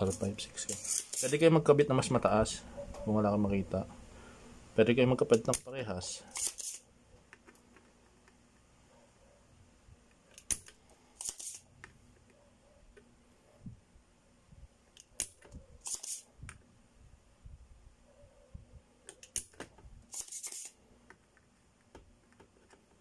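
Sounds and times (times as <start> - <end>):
desoldering pump hiss: 10.4 - 11.7.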